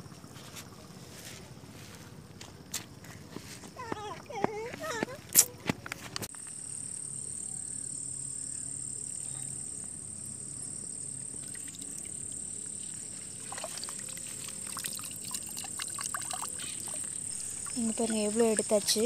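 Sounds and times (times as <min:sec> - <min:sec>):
high-pitched insect drone: 0:06.4 - 0:19.0
trickle of water: 0:11.2 - 0:18.8
small water splashes: 0:11.3 - 0:19.0.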